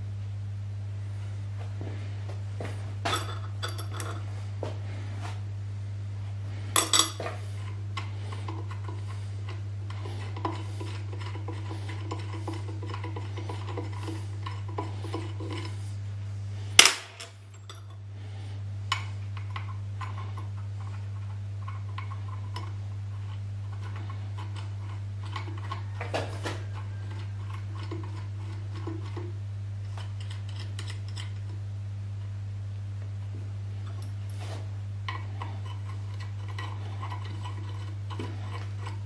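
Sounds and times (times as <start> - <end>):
steady low hum: 0.0 - 39.0.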